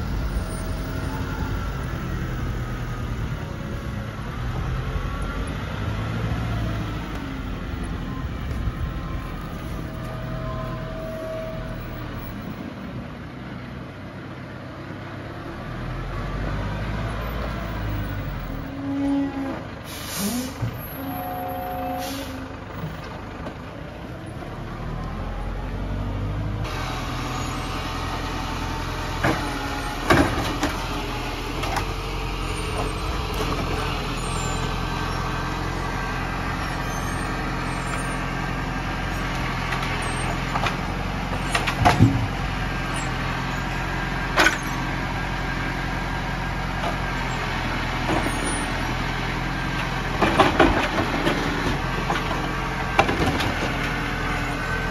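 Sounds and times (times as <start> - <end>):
tractor diesel engine running: 0.0 - 19.0, 19.6 - 54.9
logs and crane knocking: 39.3 - 42.6.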